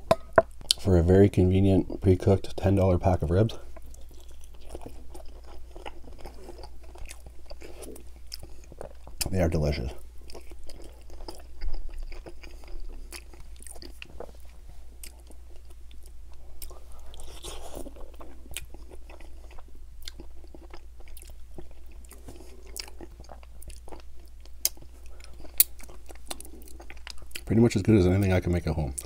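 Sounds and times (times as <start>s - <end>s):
person chewing and biting meat: 3.7s - 9.3s, 10.0s - 27.5s.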